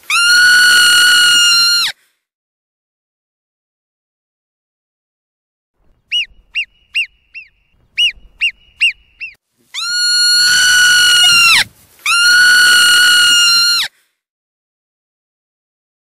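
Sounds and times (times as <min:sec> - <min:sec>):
ground squirrel whistling calls: 0:05.9 - 0:13.8
ground squirrel chirps: 0:06.0 - 0:12.3.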